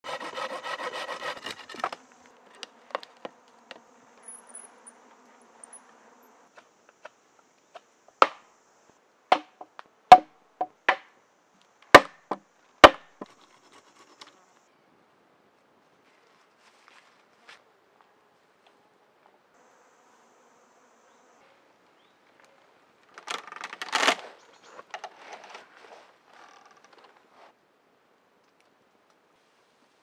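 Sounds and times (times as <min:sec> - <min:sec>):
insect buzzing: 0:00.1 - 0:09.6, 0:19.6 - 0:22.1
knife striking into wood: 0:09.3 - 0:11.0, 0:12.8 - 0:13.2.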